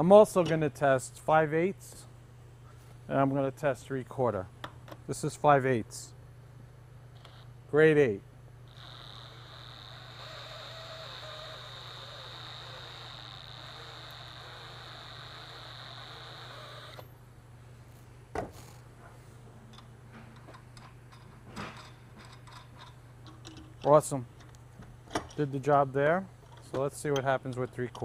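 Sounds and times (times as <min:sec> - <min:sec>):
power drill motor whine: 0:07.2 - 0:07.5, 0:08.7 - 0:17.1.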